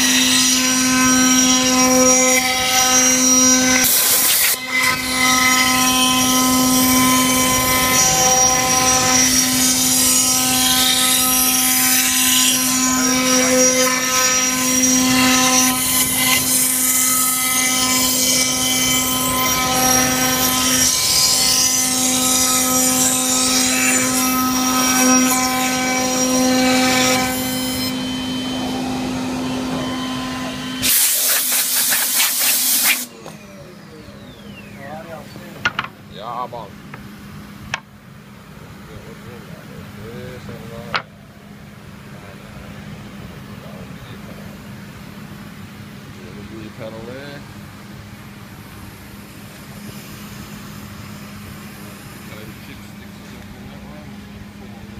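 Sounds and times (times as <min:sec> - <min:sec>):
bit cutting wood: 0:00.0 - 0:36.0
router spindle whine: 0:00.0 - 0:54.9.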